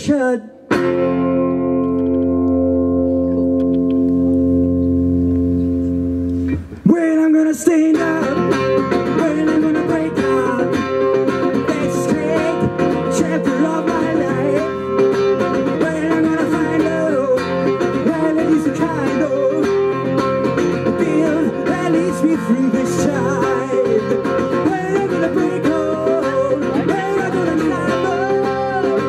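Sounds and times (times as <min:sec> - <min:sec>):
man singing: 0:00.0 - 0:00.6, 0:06.8 - 0:29.0
resonator guitar playing: 0:00.7 - 0:06.8, 0:07.8 - 0:29.0.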